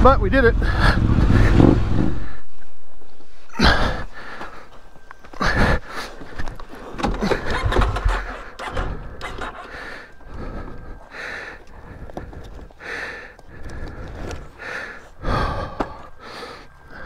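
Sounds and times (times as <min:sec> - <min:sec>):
person breathing hard: 0:03.2 - 0:07.6, 0:08.2 - 0:17.0.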